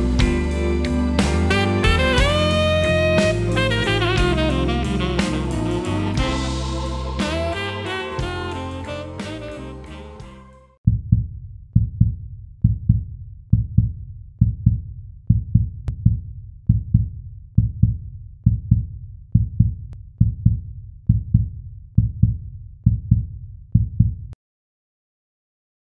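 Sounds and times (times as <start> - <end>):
outro music with bass pulse: 0.0 - 11.1.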